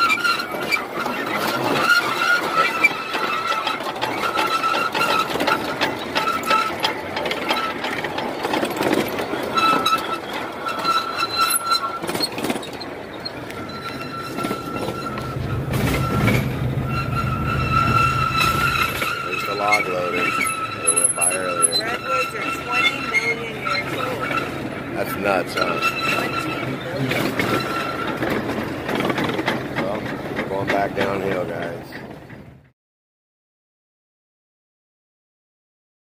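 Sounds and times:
clicks over rail joints: 0:00.0 - 0:16.6, 0:17.7 - 0:32.6
train wheels squealing: 0:00.0 - 0:32.7
low rumble: 0:14.6 - 0:19.6.

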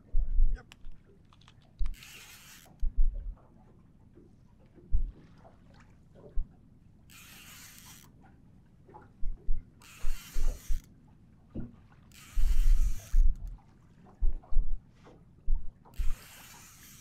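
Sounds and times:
fishing reel whirring: 0:01.8 - 0:02.8, 0:07.1 - 0:08.1, 0:09.8 - 0:10.9, 0:12.1 - 0:13.5, 0:16.0 - 0:17.0.

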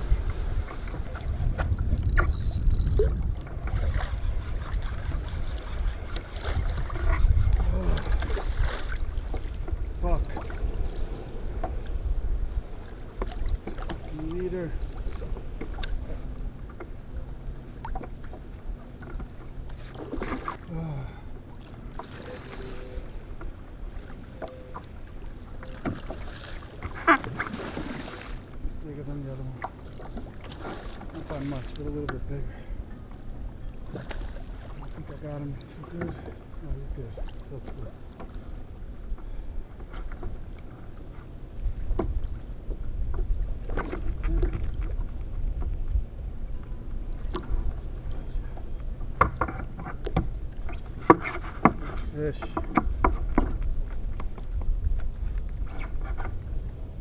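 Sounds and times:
water splashing around a kayak: 0:00.0 - 0:57.0
wind rumbling on microphone: 0:00.0 - 0:57.0
small knocks: 0:49.2 - 0:50.3.

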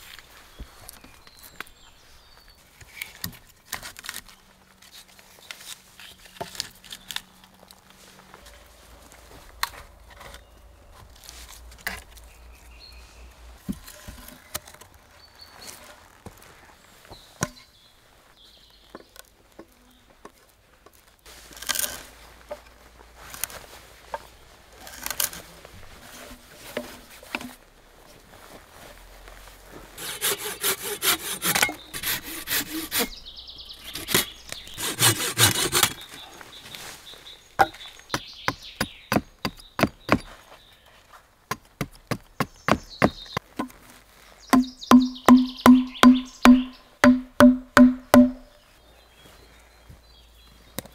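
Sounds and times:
hand saw cutting log: 0:30.0 - 0:33.2, 0:33.8 - 0:36.1, 0:44.6 - 0:48.4
hatchet knocking wooden stake: 0:44.5 - 0:48.5.

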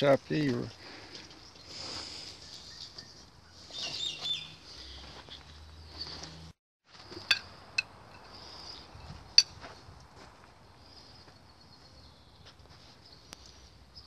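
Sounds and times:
small birds chirping: 0:00.3 - 0:06.4, 0:08.2 - 0:09.4, 0:10.6 - 0:14.0.

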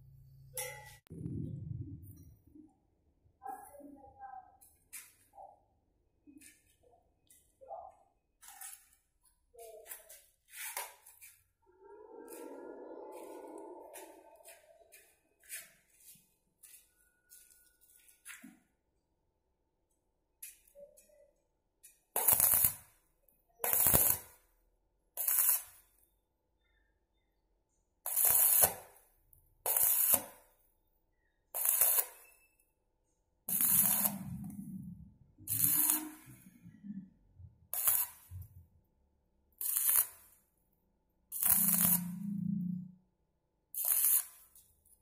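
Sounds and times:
arc welder crackling: 0:22.2 - 0:22.9, 0:23.6 - 0:24.4, 0:25.2 - 0:25.8, 0:28.1 - 0:28.9, 0:29.7 - 0:30.4, 0:31.6 - 0:32.3, 0:33.5 - 0:36.4, 0:37.8 - 0:38.5, 0:39.6 - 0:40.4, 0:41.3 - 0:42.3, 0:43.8 - 0:44.6.

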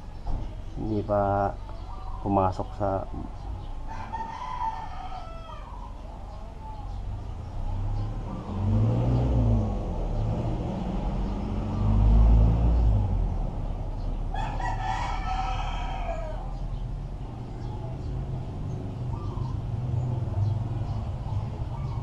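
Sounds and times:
rooster crowing: 0:03.9 - 0:06.4, 0:14.3 - 0:16.7.

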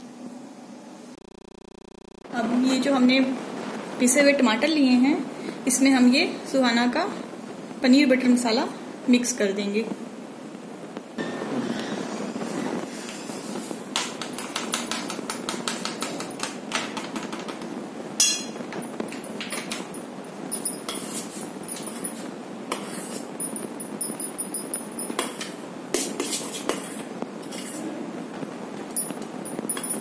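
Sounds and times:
metal spoon scraping steel bowl: 0:20.6 - 0:25.1.

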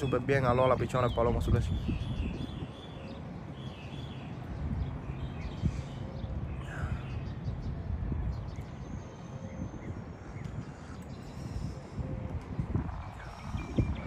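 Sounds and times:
small birds chirping: 0:00.0 - 0:14.0
steady low rumble: 0:04.4 - 0:14.0.

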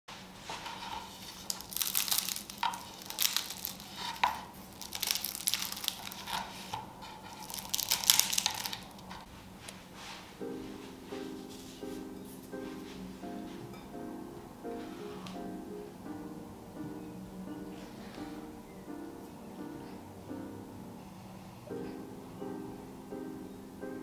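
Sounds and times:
flatbread crust crackling: 0:00.2 - 0:09.3
light music: 0:00.4 - 0:24.0.

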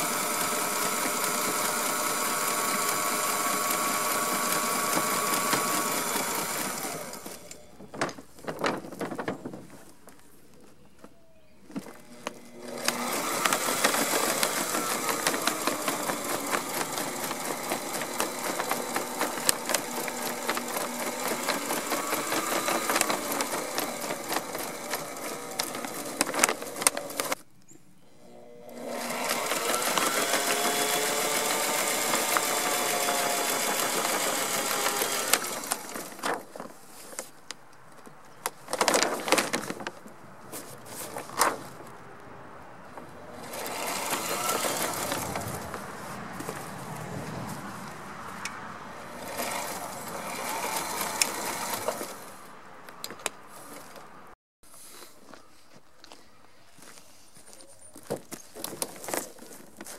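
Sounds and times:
sewing machine stitching: 0:00.0 - 0:07.9, 0:11.8 - 0:27.4, 0:28.3 - 0:36.6, 0:43.3 - 0:46.7, 0:49.1 - 0:52.4.

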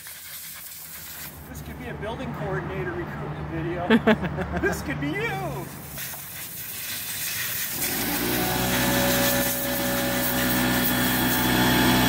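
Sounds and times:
compressed air hissing: 0:00.0 - 0:01.5, 0:05.7 - 0:12.0
air compressor motor humming: 0:07.7 - 0:12.0.

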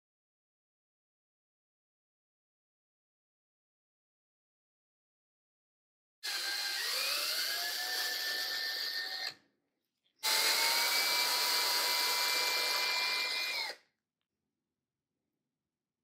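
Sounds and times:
cordless drill drilling into steel: 0:06.2 - 0:09.4, 0:10.2 - 0:13.8.

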